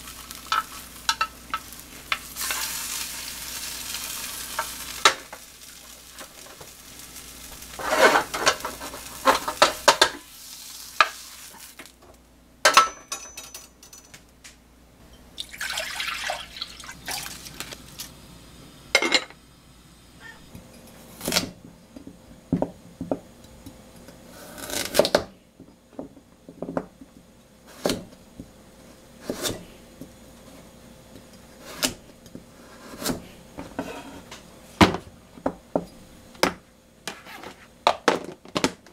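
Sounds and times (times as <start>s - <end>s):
pots and utensils clinking: 0.0s - 3.1s, 7.8s - 10.3s, 12.7s - 14.1s
water pouring: 15.4s - 18.0s.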